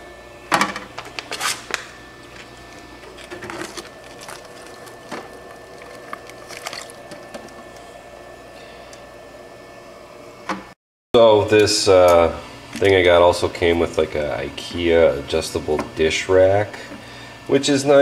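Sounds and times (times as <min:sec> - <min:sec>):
circulator humming in water: 0:00.0 - 0:10.6.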